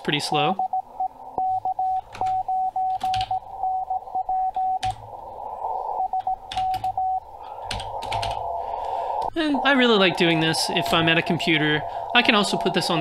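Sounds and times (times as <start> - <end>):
receiver hiss: 0.0 - 13.0
morse code tone: 0.5 - 13.0.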